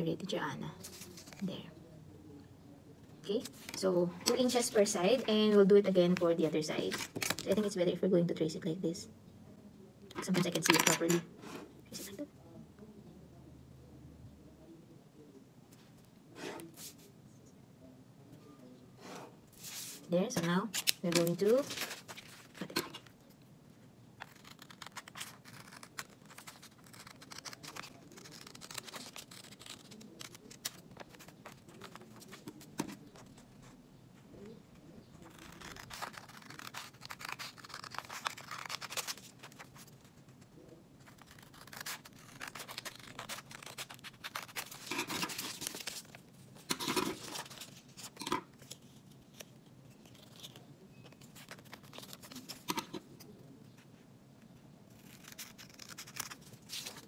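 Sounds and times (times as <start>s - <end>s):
paper rustling and crackling: 0.8s - 1.4s, 20.7s - 23.1s, 24.2s - 33.7s, 34.3s - 53.2s, 55.0s - 57.0s
scissors snipping paper: 24.2s - 33.3s, 35.2s - 40.0s, 41.0s - 53.1s, 55.0s - 57.0s.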